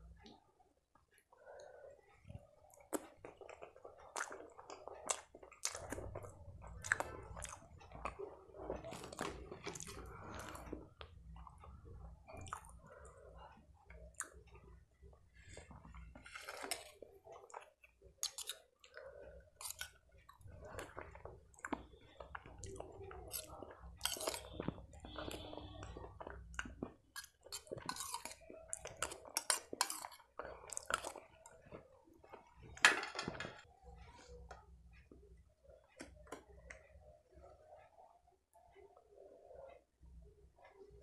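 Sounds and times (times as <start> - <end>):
close chewing with mouth smacks: 1.6 - 32.4.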